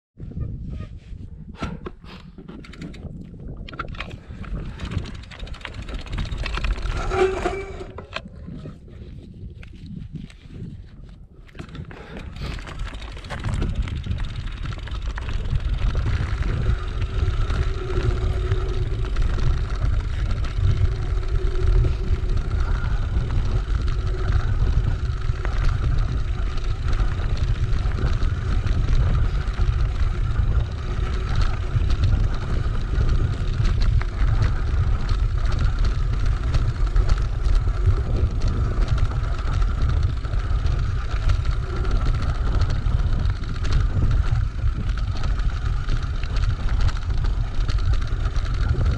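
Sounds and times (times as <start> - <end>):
wind buffeting microphone: 0.2 - 48.9
bike tyres crackling on stones: 3.0 - 8.1, 9.6 - 48.9
steady high whine: 13.2 - 48.9.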